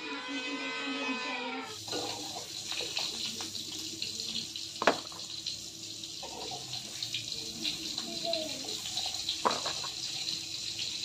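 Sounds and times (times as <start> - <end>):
tap running into plastic tub: 4.8 - 5.3, 9.3 - 10.1.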